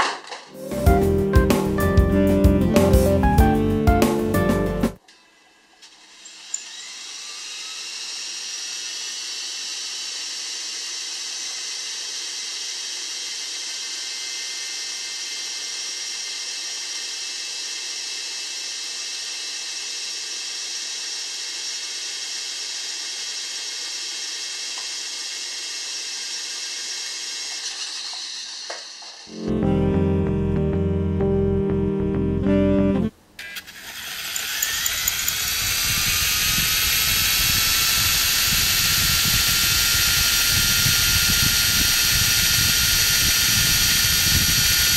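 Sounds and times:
propeller high whir: 0:34.0 - 0:44.9.

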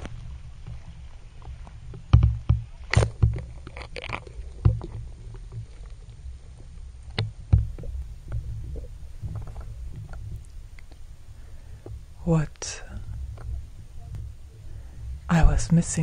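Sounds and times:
splashing: 0:00.0 - 0:06.5
water sloshing against camera: 0:00.0 - 0:16.0.

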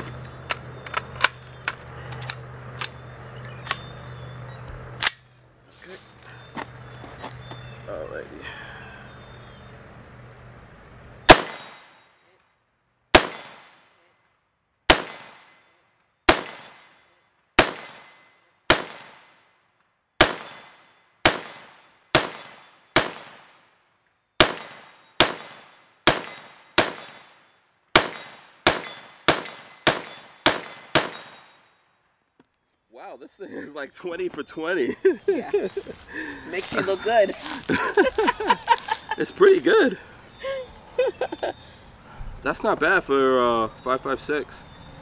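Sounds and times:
rifle shots with echo: 0:11.3 - 0:12.0, 0:13.1 - 0:13.9, 0:14.9 - 0:15.6, 0:16.3 - 0:16.9, 0:17.6 - 0:19.4, 0:20.2 - 0:23.6, 0:24.4 - 0:31.6.

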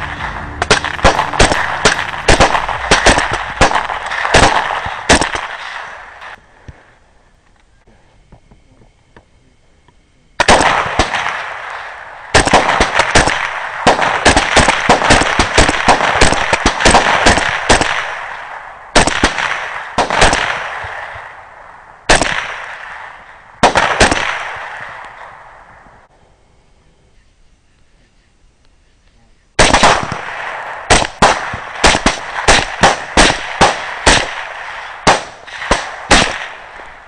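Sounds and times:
rifle shots with echo: 0:00.0 - 0:06.4, 0:10.4 - 0:25.8, 0:29.6 - 0:37.0.

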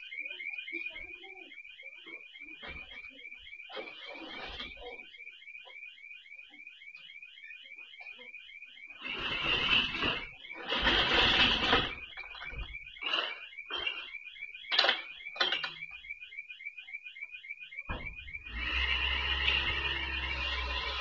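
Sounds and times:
alarm siren chirping rapidly: 0:00.0 - 0:21.0
glass door smashing: 0:09.0 - 0:16.0.

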